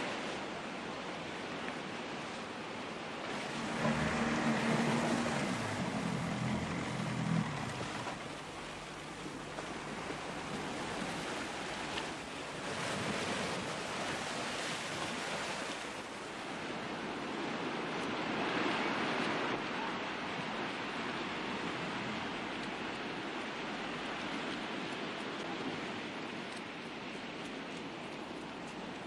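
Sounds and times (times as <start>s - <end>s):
surf breaking on sandy beach: 3.1s - 16.0s
low hum: 3.3s - 11.1s.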